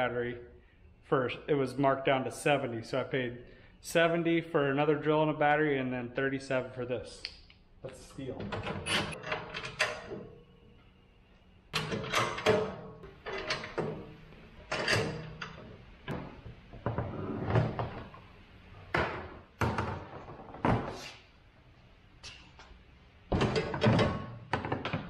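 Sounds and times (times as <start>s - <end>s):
steel parts clanking together: 11.8s - 15.6s.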